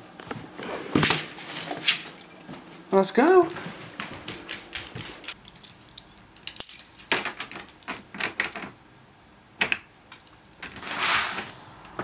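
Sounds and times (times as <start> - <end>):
leash hardware jingling: 2.0 - 9.1, 9.8 - 10.6.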